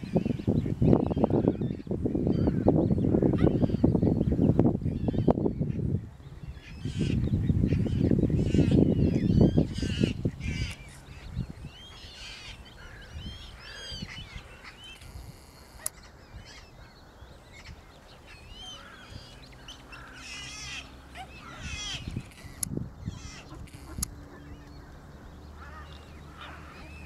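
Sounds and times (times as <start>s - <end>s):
cygnets peeping: 6.4s - 27.0s.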